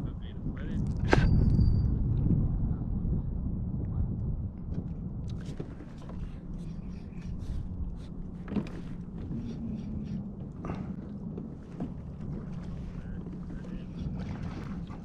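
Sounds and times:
wind on microphone: 0.0s - 15.0s
water lapping against kayak hull: 3.9s - 15.0s.

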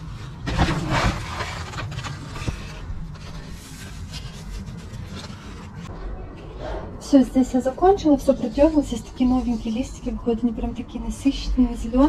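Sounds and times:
clay pebbles rustling and scraping: 0.0s - 5.9s.

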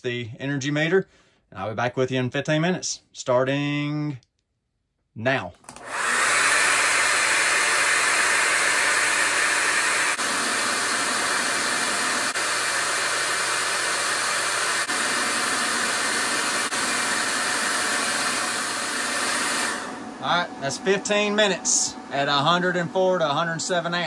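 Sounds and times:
hair dryer blowing: 5.7s - 24.0s.

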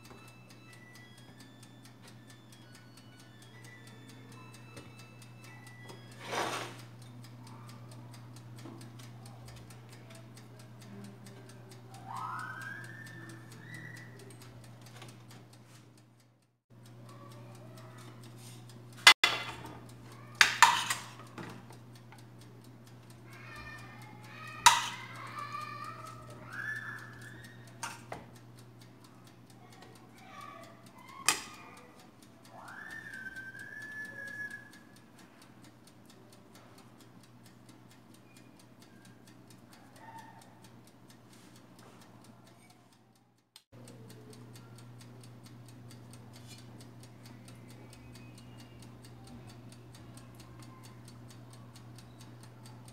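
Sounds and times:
faint ticking: 0.0s - 52.9s
utensils clinking on plate: 6.2s - 6.8s, 19.2s - 21.7s, 24.6s - 25.1s
electrical hum: 43.8s - 52.9s.

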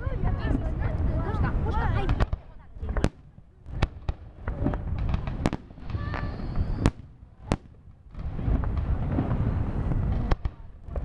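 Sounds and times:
fireworks bursting with sharp bangs: 0.0s - 11.0s
low rumble: 2.8s - 11.0s.

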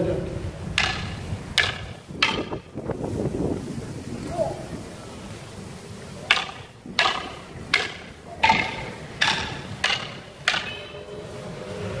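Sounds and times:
training sticks clacking: 0.7s - 2.8s, 6.2s - 11.0s.

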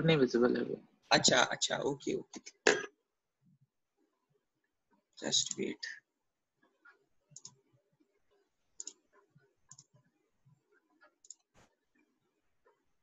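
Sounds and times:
computer mouse clicks: 6.6s - 12.8s.

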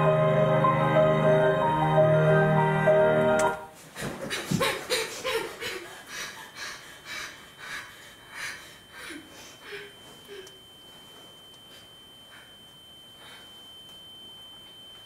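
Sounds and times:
music: 0.0s - 3.8s
person panting heavily: 4.9s - 10.0s.

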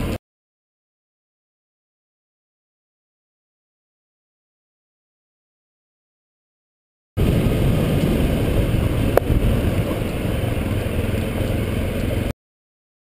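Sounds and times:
motorcycle engine running: 7.2s - 12.3s
wind rumble on microphone: 7.2s - 12.3s.

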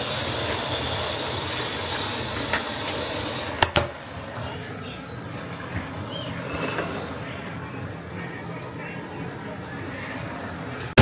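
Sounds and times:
rice sizzling in a pot: 0.0s - 3.6s.

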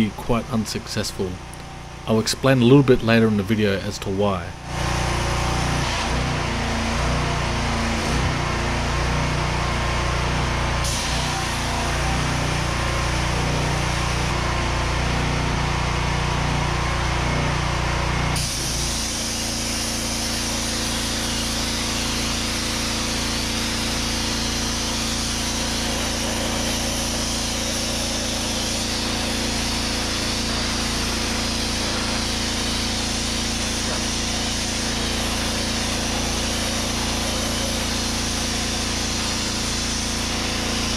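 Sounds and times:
pressure washer engine running: 0.0s - 40.9s
hiss of water and sand jet: 18.4s - 40.9s.

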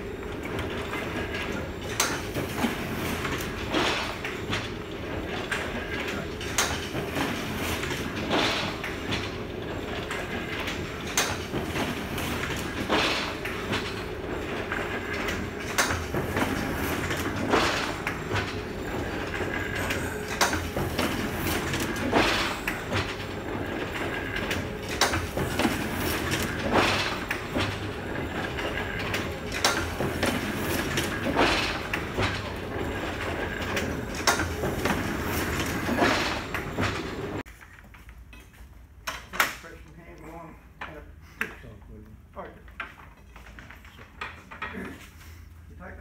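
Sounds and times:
printing press clattering: 0.0s - 37.5s
printing press loud clank: 1.4s - 37.4s.

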